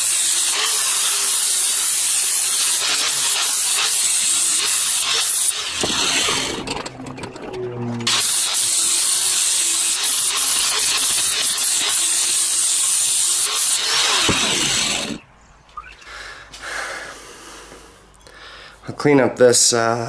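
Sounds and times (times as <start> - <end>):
angle grinder grinding steel: 0.0 - 15.2.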